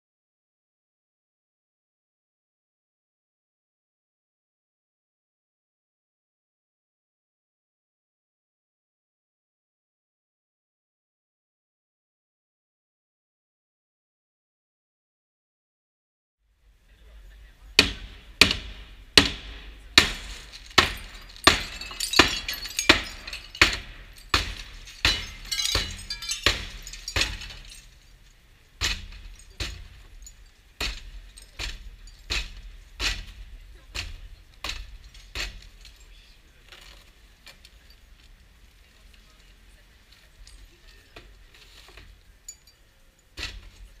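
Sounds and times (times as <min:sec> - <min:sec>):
metal bar striking window glass: 0:17.8 - 0:28.0, 0:28.8 - 0:36.1, 0:43.4 - 0:43.9
broken glass crackling and tinkling: 0:18.0 - 0:44.0.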